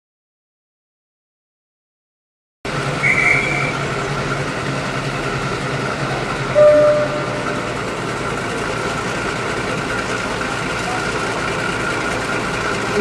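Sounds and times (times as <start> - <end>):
diesel locomotive running: 2.7 - 13.0
locomotive horn: 3.0 - 3.8, 6.5 - 7.9
short high whistle: 3.0 - 3.8, 6.6 - 7.7.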